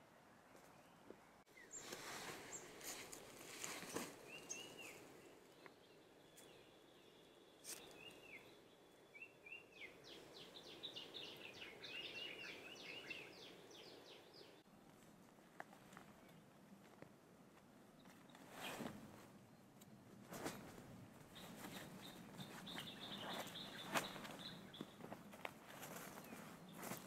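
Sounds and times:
descending bird chirps: 7.6 - 14.6, 21.4 - 24.9.

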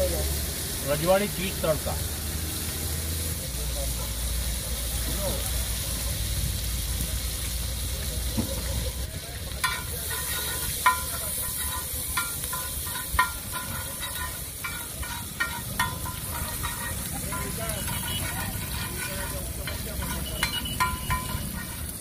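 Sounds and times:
butter and oil sizzling: 0.0 - 22.0
steel spatula scraping griddle: 9.6 - 22.0.

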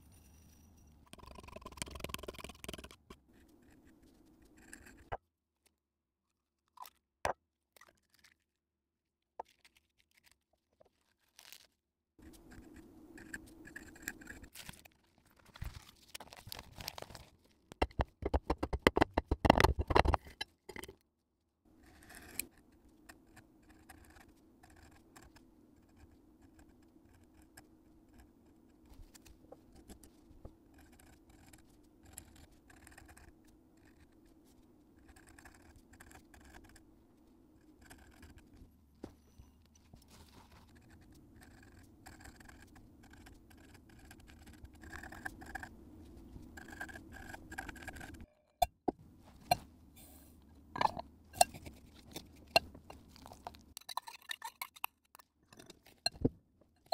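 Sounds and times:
faint steady hum: 12.2 - 18.0, 21.7 - 56.9
pen scratching on paper: 30.7 - 34.4, 35.0 - 36.8, 37.6 - 38.6.

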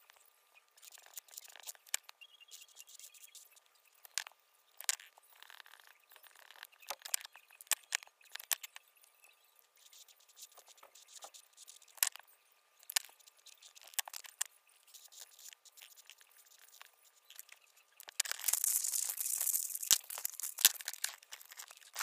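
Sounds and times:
markers scratching on paper: 0.8 - 1.8, 9.8 - 12.1, 13.0 - 22.0
paper rustling: 18.1 - 22.0.

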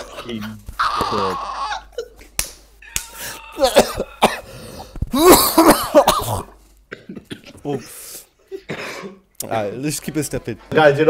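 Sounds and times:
men coughing: 0.0 - 2.3, 3.3 - 9.3
men laughing: 0.0 - 2.4, 3.1 - 4.4.

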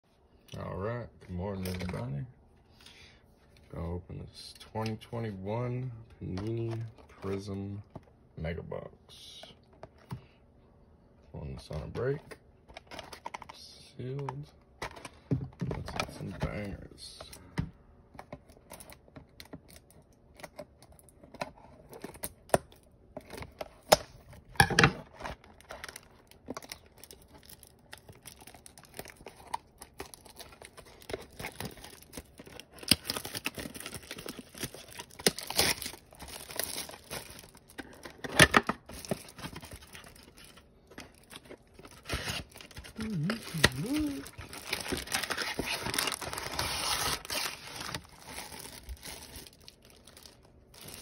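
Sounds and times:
plastic wrap crackling and rustling: 25.0 - 51.0
plastic wrap ripping: 25.4 - 38.1, 38.9 - 51.0.

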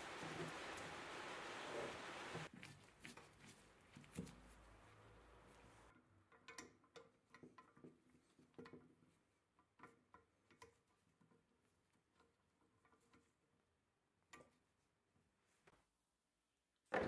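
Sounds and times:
faint steady hiss: 0.0 - 6.0.

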